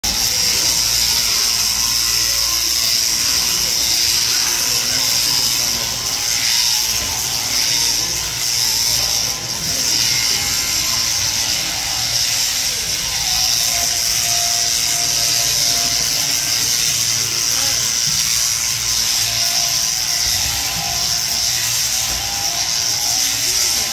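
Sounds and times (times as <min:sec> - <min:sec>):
shearing handpiece whirring: 0:00.0 - 0:23.9.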